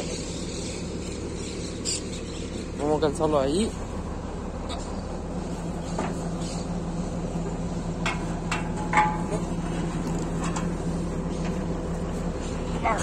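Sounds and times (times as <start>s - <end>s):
engine humming: 0.0s - 13.0s
sharp metal clanks: 8.0s - 9.5s.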